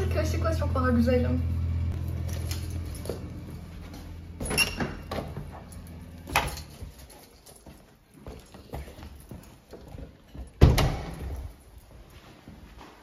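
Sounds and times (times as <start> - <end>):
low steady hum: 0.0 - 7.6.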